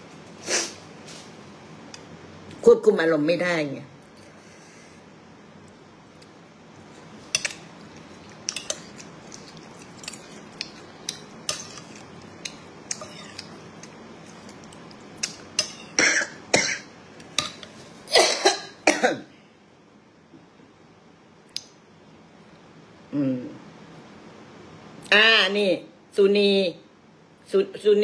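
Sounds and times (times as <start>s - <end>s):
woman coughing: 16.0s - 16.9s, 18.1s - 19.3s.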